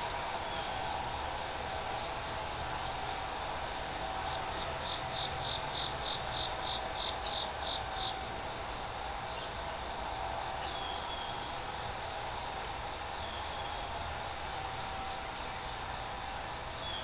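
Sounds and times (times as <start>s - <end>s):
background hiss and hum: 0.0s - 17.0s
insect chirping: 4.3s - 8.2s.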